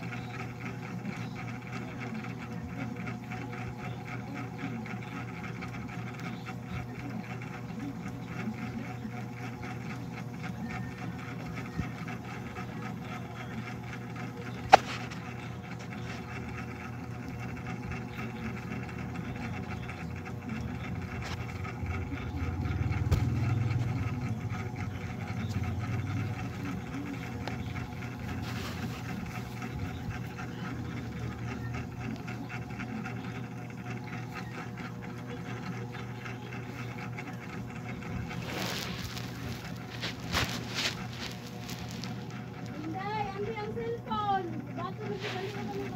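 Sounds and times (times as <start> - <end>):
mechanical hum: 0.0 - 45.9.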